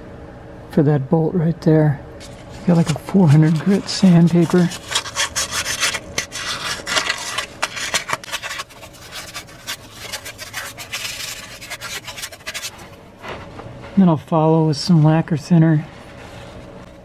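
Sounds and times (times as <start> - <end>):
sandpaper rubbing on metal: 2.7 - 12.9.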